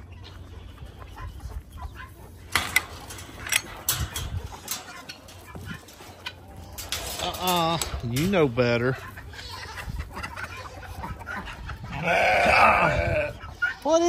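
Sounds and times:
chickens clucking: 0.0s - 14.0s
sharp clicks and knocks: 2.5s - 8.4s.

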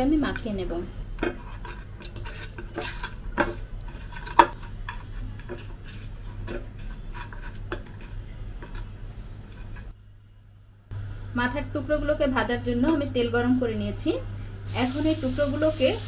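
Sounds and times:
low steady hum: 7.7s - 15.7s.

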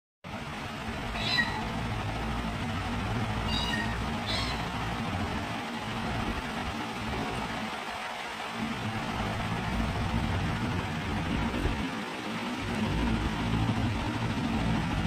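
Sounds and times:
low background noise: 0.3s - 15.0s
kittens mewing: 1.0s - 1.9s, 3.4s - 5.0s.

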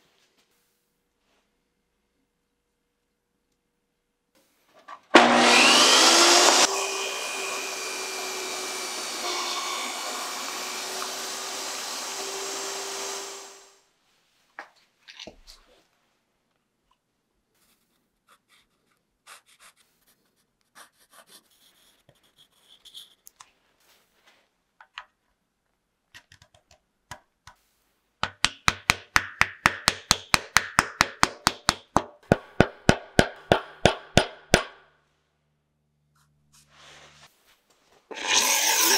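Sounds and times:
table saw whining: 5.1s - 13.8s, 38.1s - 38.9s.

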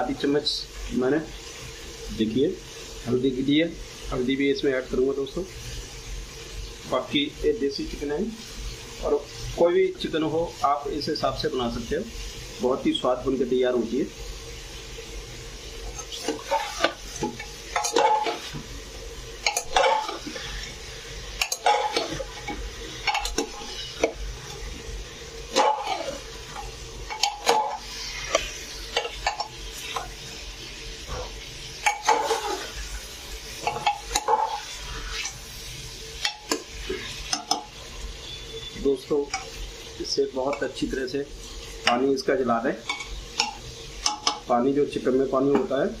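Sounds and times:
frying sizzle: 0.0s - 46.0s
spoon scraping and knocking pot: 15.9s - 18.6s, 19.4s - 20.2s, 21.4s - 24.2s, 25.5s - 30.1s, 33.6s - 34.6s, 37.3s - 37.7s.

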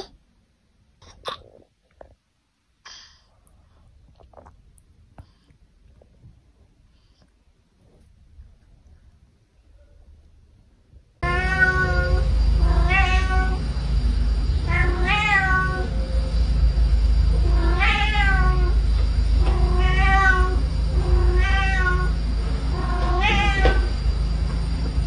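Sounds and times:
cat yowling: 11.2s - 13.6s, 14.6s - 16.0s, 17.4s - 18.8s, 19.4s - 23.9s.

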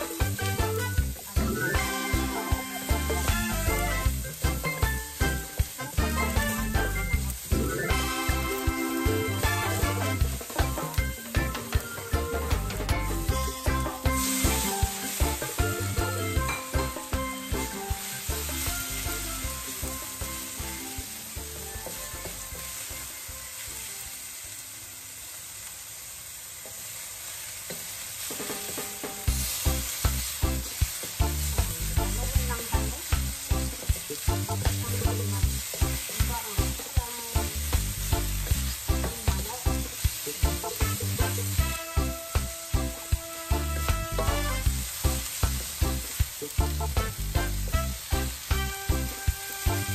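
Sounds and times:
background music with steady beat: 0.0s - 23.9s, 28.3s - 49.9s
chicken sizzling in a wok: 0.0s - 49.9s.

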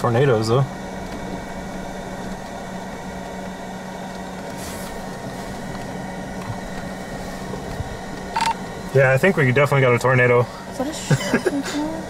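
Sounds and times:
engine low hum: 0.0s - 12.0s
car cabin rushing hiss: 4.4s - 12.0s.

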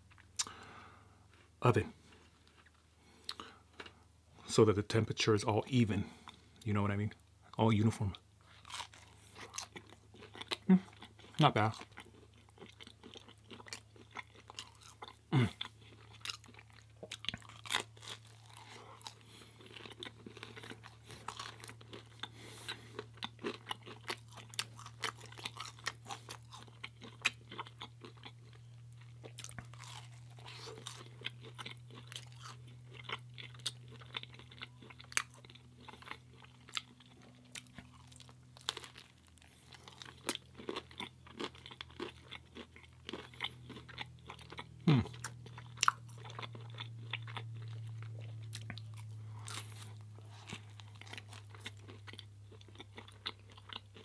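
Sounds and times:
chewing crunchy food: 0.0s - 4.1s, 6.0s - 54.0s
steady low hum: 0.0s - 54.0s.

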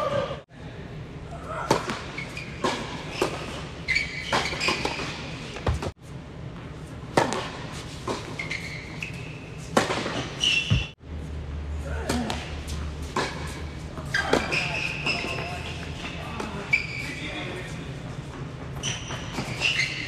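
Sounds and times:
shoes squeaking: 2.0s - 6.0s, 7.2s - 11.0s, 12.6s - 20.0s
tennis balls struck by rackets: 7.1s - 8.4s, 9.7s - 11.0s.

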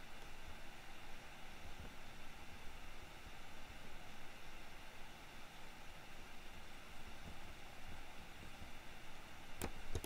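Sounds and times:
microphone hiss: 0.0s - 10.0s.

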